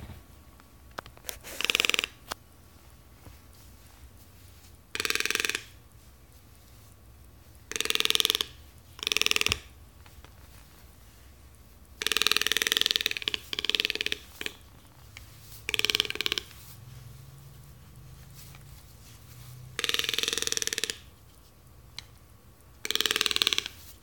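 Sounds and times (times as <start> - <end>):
toucan rattling croaks: 1.5 - 2.3, 4.9 - 6.0, 7.5 - 10.2, 11.9 - 18.8, 19.6 - 21.2, 22.7 - 24.0.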